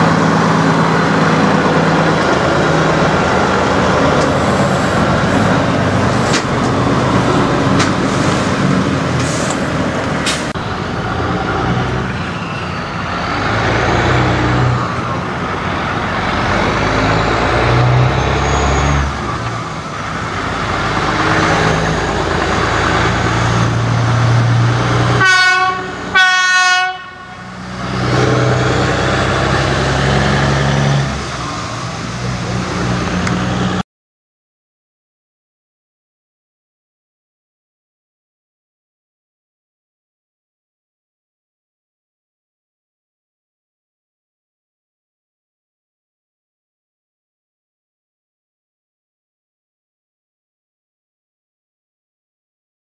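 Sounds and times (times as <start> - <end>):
diesel truck engines: 0.0 - 33.8
truck horn blasts: 25.1 - 27.6.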